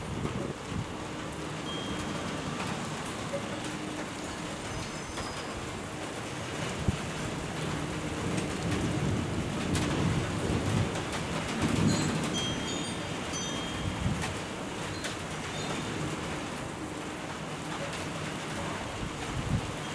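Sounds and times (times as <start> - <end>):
steady rain: 0.0 - 19.9
low roll of thunder: 6.6 - 12.3.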